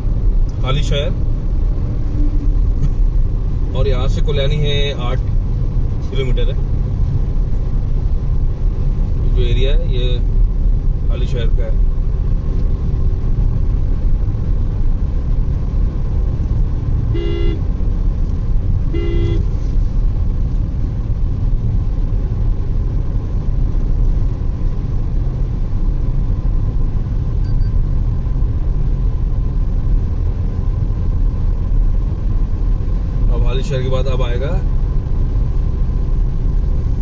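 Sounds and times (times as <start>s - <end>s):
car road and engine rumble: 0.0s - 37.0s
vehicle horn tooting: 17.1s - 17.6s, 18.9s - 19.5s.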